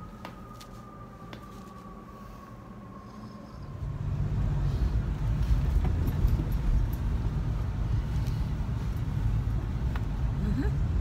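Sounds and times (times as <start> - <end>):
faint whine: 0.0 - 5.6
car engine and road rumble: 0.0 - 11.0.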